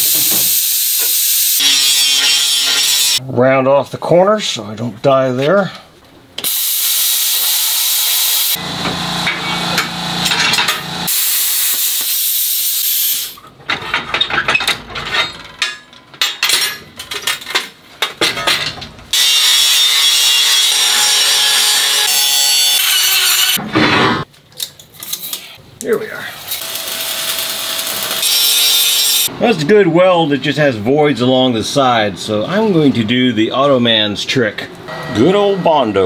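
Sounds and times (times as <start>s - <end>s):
plasma cutter hissing: 0.0s - 3.2s, 6.4s - 8.6s, 11.1s - 13.4s.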